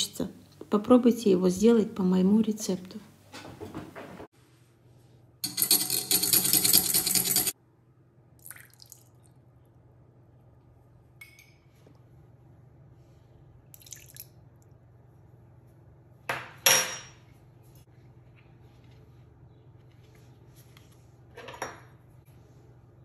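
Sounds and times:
whisk clattering in glass bowl: 0:05.4 - 0:07.6.

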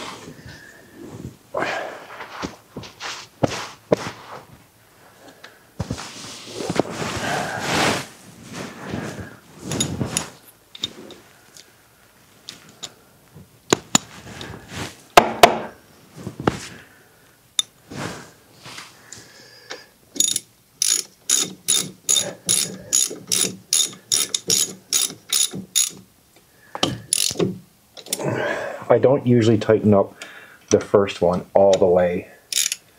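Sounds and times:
tools clinking: 0:09.6 - 0:11.2, 0:20.1 - 0:26.1, 0:26.8 - 0:28.2, 0:32.5 - 0:32.9
ratchet wrench clicks: 0:20.2 - 0:26.0, 0:27.1 - 0:27.4, 0:32.5 - 0:32.9.

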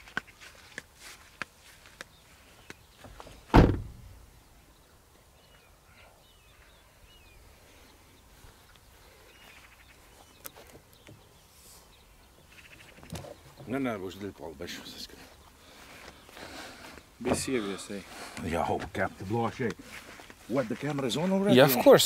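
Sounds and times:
heavy thump: 0:03.5 - 0:04.2
faint bird chirps: 0:04.4 - 0:13.7.

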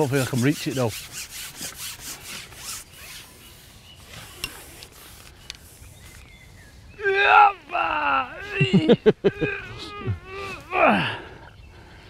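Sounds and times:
fishing pole rubbing on bank: 0:00.0 - 0:06.3.

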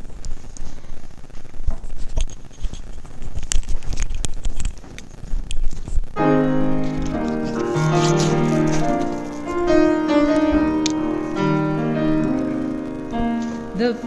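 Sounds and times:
gospel piano chords: 0:06.2 - 0:14.0.

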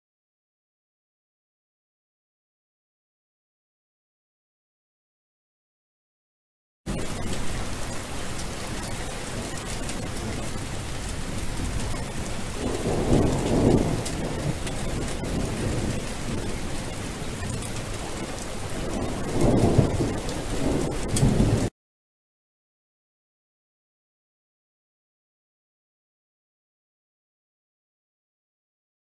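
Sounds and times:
low rolls of thunder: 0:06.9 - 0:21.7
steady rain: 0:06.9 - 0:21.7.

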